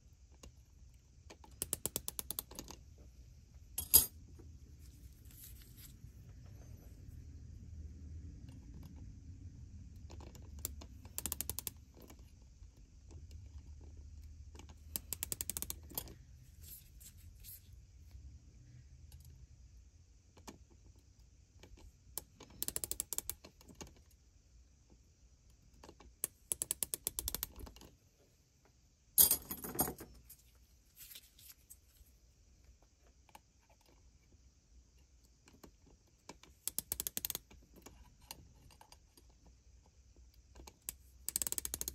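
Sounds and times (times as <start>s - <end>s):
micrometer ratchet clicking: 10.7s - 11.8s, 15.0s - 16.0s, 36.7s - 37.4s, 40.9s - 41.9s.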